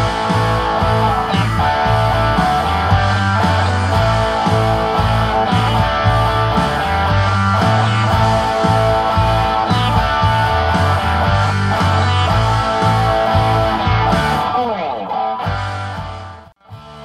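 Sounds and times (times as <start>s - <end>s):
electric guitar strumming chords: 0.0s - 17.0s.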